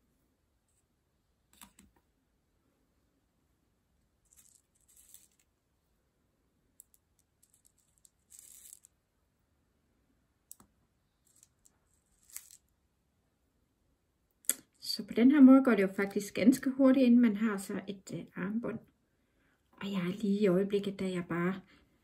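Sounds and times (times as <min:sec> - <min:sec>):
seed beads clicking and rattling: 0:04.2 - 0:05.5, 0:06.8 - 0:09.0, 0:11.2 - 0:12.7.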